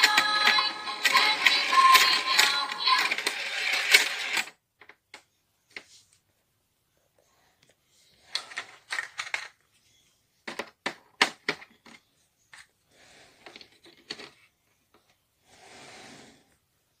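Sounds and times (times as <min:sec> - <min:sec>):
plastic toy clicks and knocks: 0:00.0 - 0:05.2, 0:08.4 - 0:09.6, 0:10.4 - 0:12.0.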